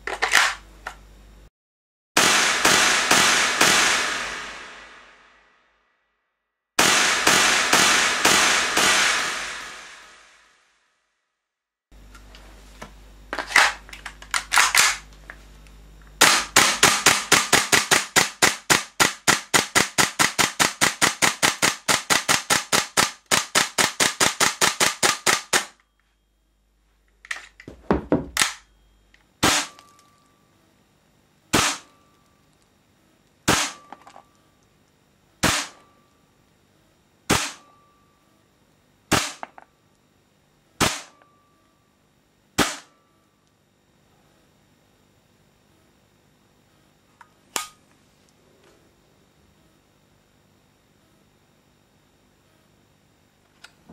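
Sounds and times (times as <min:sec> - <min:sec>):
airsoft gun firing shots: 0:02.2 - 0:05.3, 0:06.8 - 0:10.5, 0:16.2 - 0:25.8, 0:27.9 - 0:28.7, 0:29.4 - 0:29.9, 0:31.5 - 0:31.9, 0:33.5 - 0:33.9, 0:35.4 - 0:35.8, 0:37.3 - 0:37.7, 0:39.1 - 0:39.6, 0:40.8 - 0:41.2, 0:42.6 - 0:43.0.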